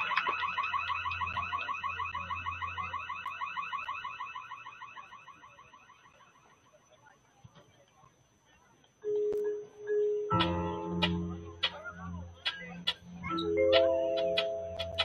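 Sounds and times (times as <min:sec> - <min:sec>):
band holding pulsing chord: 0:09.4 - 0:15.0.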